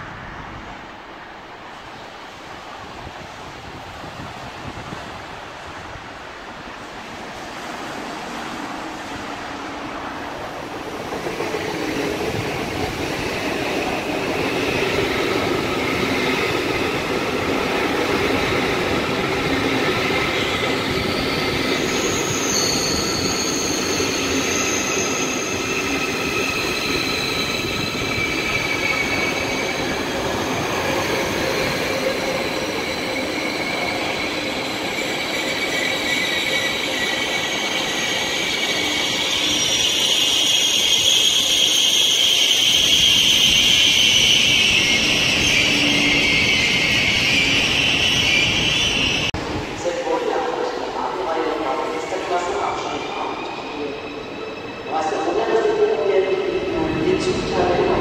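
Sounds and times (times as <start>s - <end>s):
train running on rails: 0.0s - 58.0s
wheels squealing: 20.4s - 49.3s.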